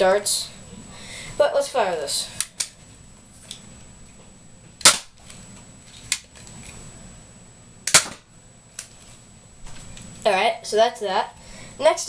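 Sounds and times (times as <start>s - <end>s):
toy dart blaster pops: 4.8s - 5.1s, 7.9s - 8.2s.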